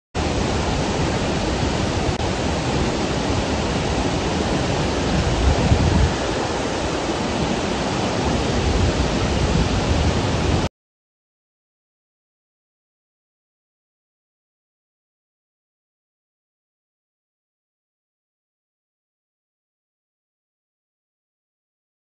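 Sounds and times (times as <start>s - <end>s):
floodwater rushing down spillway: 0.2s - 10.7s.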